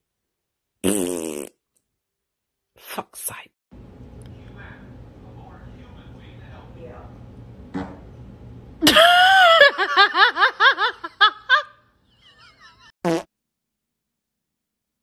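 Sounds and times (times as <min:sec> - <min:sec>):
high-pitched fart: 0:00.8 - 0:01.6, 0:07.7 - 0:08.0, 0:13.0 - 0:13.3.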